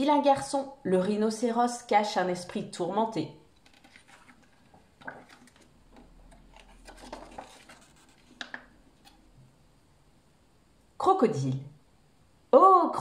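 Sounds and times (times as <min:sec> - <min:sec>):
paper page rustling: 0:03.6 - 0:09.2.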